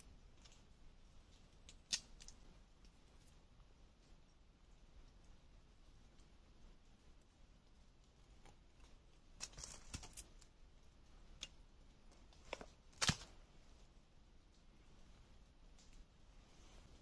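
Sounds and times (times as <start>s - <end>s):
knife and bamboo clicks: 1.6s - 2.4s
bamboo snapping: 1.7s - 2.4s, 12.5s - 13.3s.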